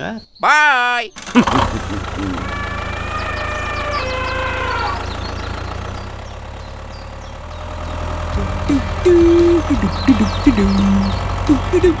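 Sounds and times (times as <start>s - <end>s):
tractor engine idling: 1.1s - 12.0s
falling tone: 1.6s - 5.8s
bouncy music: 8.3s - 12.0s.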